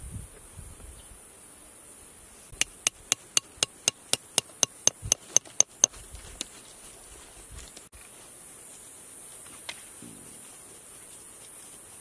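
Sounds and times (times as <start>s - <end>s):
hammer tapping metal chisel: 2.6s - 5.9s.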